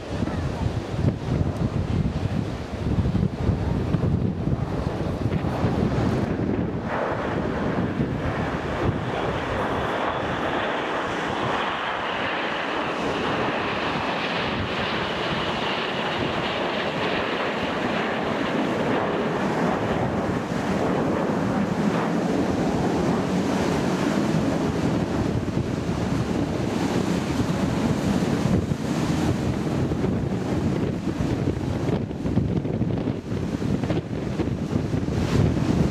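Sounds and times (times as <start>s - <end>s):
jets flying past: 0.0s - 35.9s
wind buffeting microphone: 0.0s - 35.9s
deep rumble: 0.2s - 10.4s.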